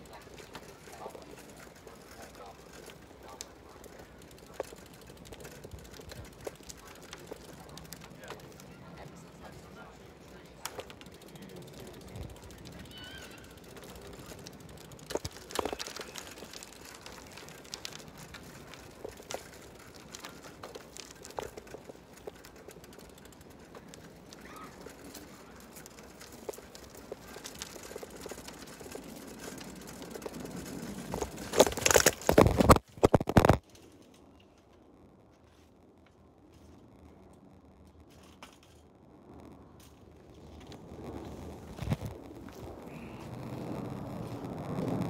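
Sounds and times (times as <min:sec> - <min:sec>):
phone microphone handling crackle: 0:29.6 - 0:33.9, 0:39.3 - 0:45.0.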